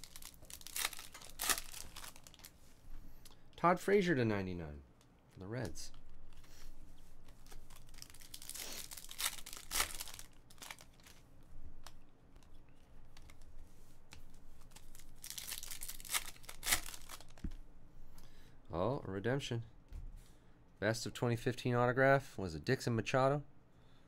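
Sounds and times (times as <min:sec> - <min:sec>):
wrapper crinkling and tearing: 0:00.0 - 0:02.6, 0:07.4 - 0:11.2, 0:14.6 - 0:17.4
trading cards being handled: 0:00.0 - 0:03.3, 0:05.0 - 0:17.6.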